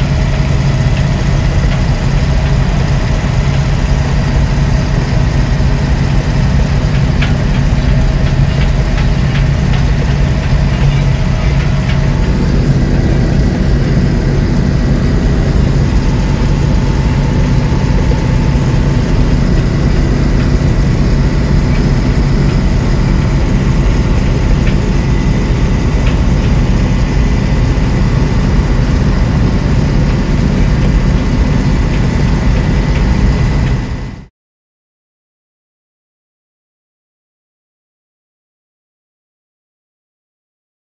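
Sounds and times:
diesel engine running: 0.0s - 34.3s
light rattles in cab: 0.1s - 34.0s.

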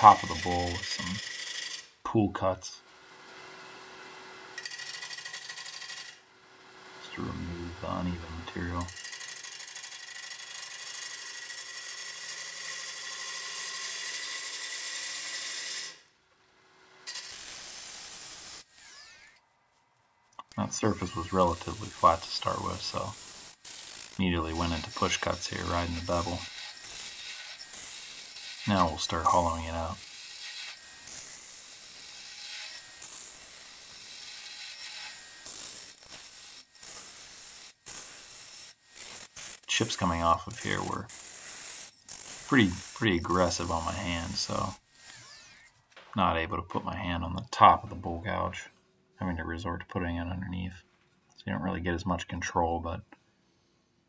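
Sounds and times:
gouge cutting wood on lathe: 0.0s - 1.9s, 4.6s - 6.2s, 8.8s - 16.0s, 20.6s - 45.6s.

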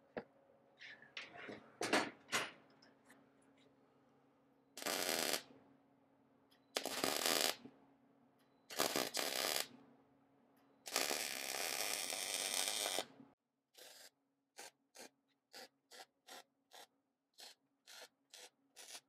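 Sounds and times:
electric arc welding crackling: 4.8s - 5.5s, 6.8s - 7.6s, 8.7s - 9.7s, 10.9s - 13.1s.

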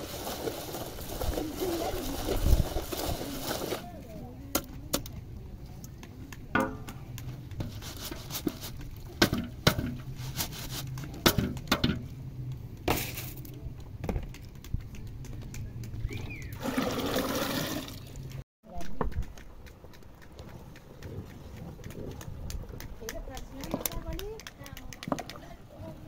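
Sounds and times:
metal ladle scraping plastic colander: 0.0s - 3.8s, 7.6s - 11.0s.

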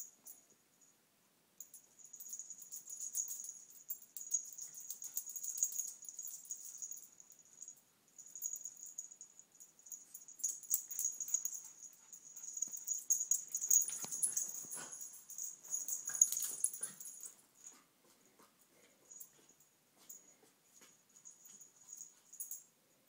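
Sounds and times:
small dog noises: 2.1s - 17.9s.

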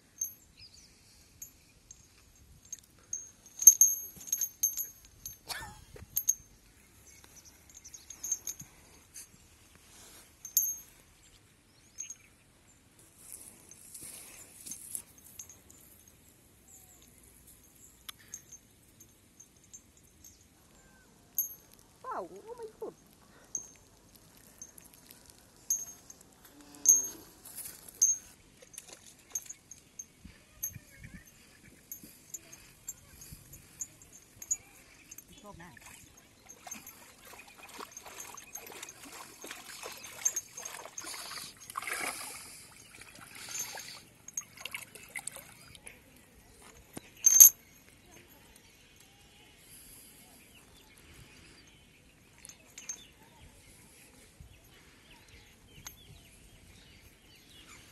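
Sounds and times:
water sloshing around legs: 35.6s - 45.8s.

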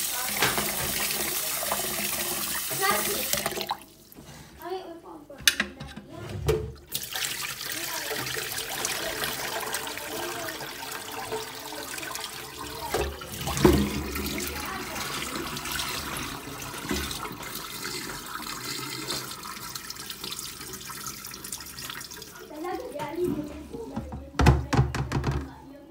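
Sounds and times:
water splashing in a pot: 0.0s - 4.1s, 6.8s - 23.0s.

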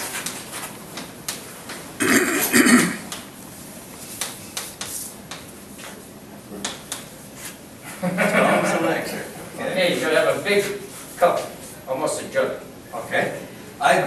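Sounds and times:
person coughing: 2.0s - 3.1s.

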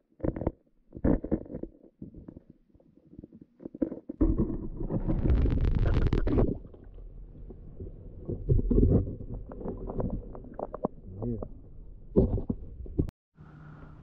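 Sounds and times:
muffled underwater rumble: 3.2s - 14.0s.

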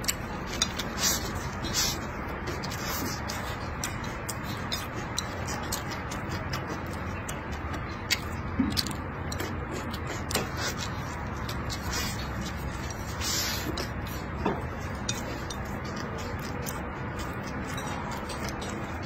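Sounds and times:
chewing clicks and smacks: 0.0s - 19.0s.

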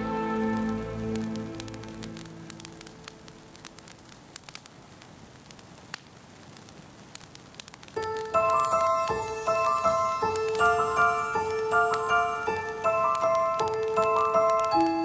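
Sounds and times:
faint steady hiss: 0.0s - 15.0s
soft crackles and clicks: 0.0s - 15.0s
gentle music with chimes: 8.0s - 15.0s.

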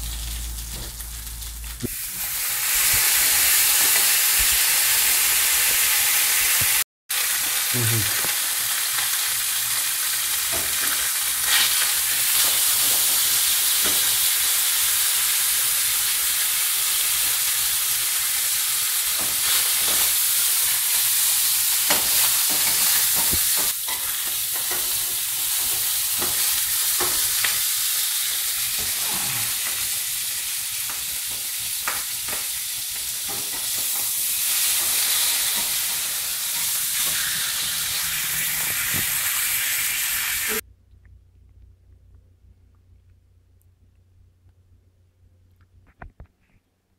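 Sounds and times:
fish sizzling in oil: 0.0s - 40.6s.

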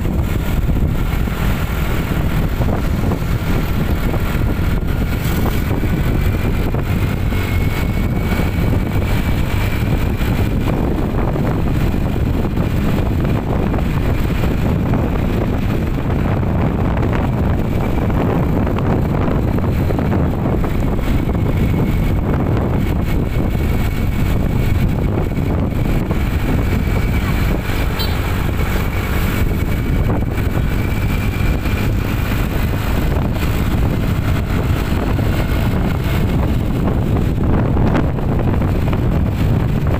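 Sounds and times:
vehicle road and engine noise: 0.0s - 39.9s
wind on microphone: 0.0s - 39.9s.

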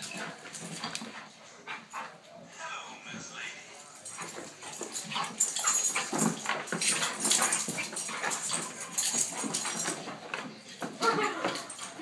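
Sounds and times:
dogs whimpering: 10.9s - 12.0s.

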